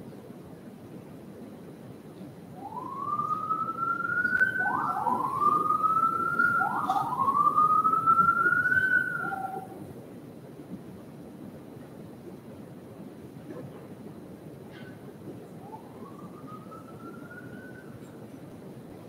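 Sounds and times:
emergency siren wailing: 2.6s - 9.8s, 15.6s - 17.6s.

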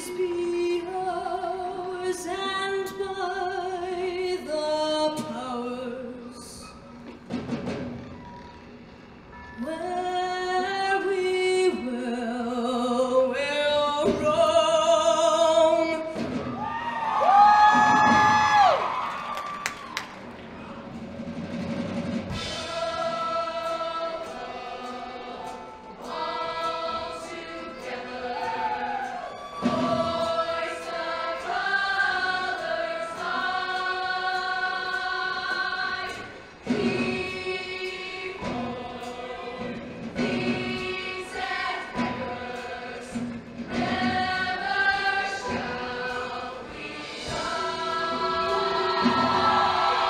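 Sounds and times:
choir singing in harmony: 0.0s - 6.8s, 20.9s - 50.0s.

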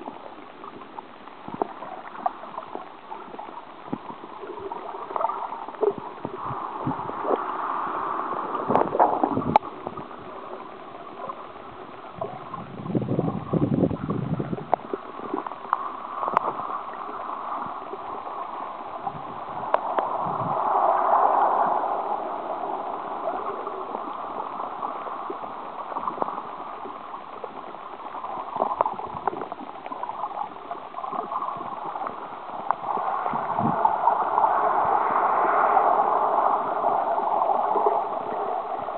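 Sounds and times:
muffled underwater rushing: 0.0s - 38.9s
low rumbling surge: 16.0s - 26.8s, 31.2s - 38.9s.

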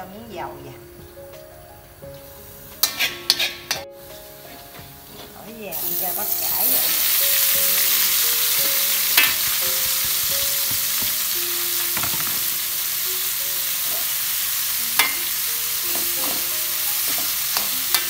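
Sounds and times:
vegetables sizzling in a wok: 0.0s - 18.0s
metal spatula clinking on pan: 2.8s - 3.8s, 15.0s - 15.2s.

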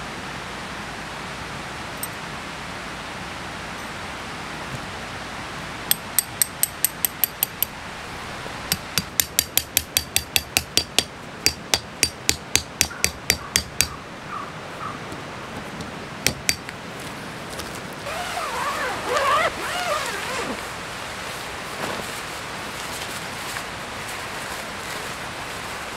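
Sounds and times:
hammer striking tent peg: 5.9s - 7.7s, 8.7s - 14.0s, 15.8s - 16.8s.

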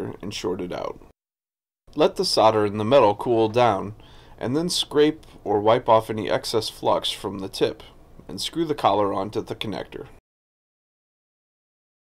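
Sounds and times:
man speaking: 0.0s - 1.1s, 1.9s - 10.2s.

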